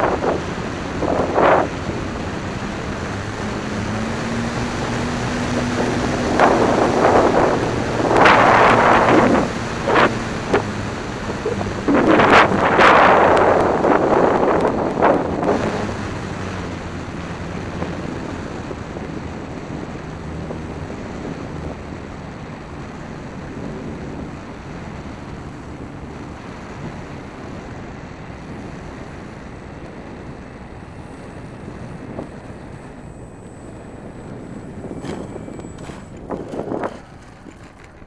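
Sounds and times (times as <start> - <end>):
model plane motor and propeller hum: 0.0 - 38.0
wind rushing over microphone: 0.0 - 38.0.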